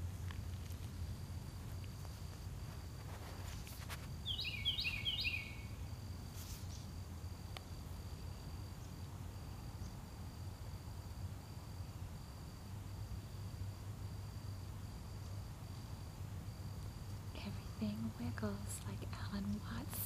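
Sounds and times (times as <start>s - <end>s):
low steady rumble: 0.0s - 4.3s, 5.4s - 20.0s
songbird singing: 0.0s - 10.4s, 15.1s - 20.0s
insect high tone: 0.0s - 20.0s.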